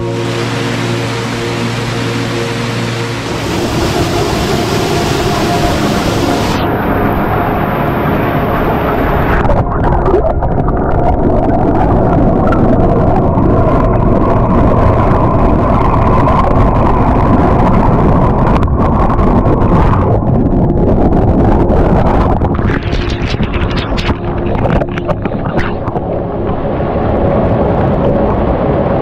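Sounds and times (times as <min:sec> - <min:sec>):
waterfall pool churning: 0:00.0 - 0:09.6.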